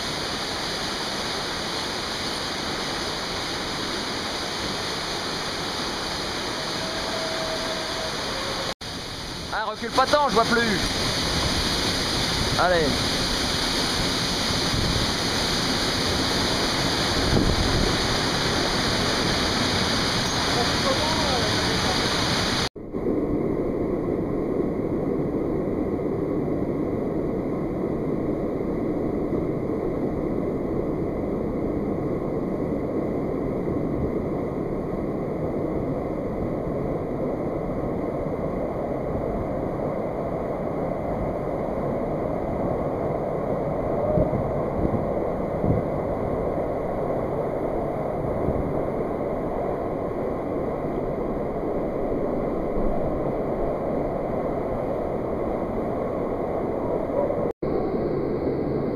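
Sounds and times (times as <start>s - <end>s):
stream water cascading over rocks: 0.0s - 22.7s.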